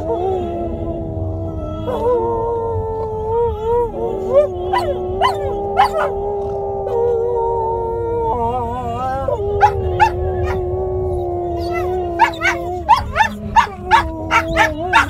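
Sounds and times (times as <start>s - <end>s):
low road rumble: 0.0s - 15.0s
dogs howling: 4.0s - 7.2s, 9.4s - 15.0s
dogs yelping: 4.7s - 6.2s, 9.6s - 10.6s, 11.6s - 15.0s.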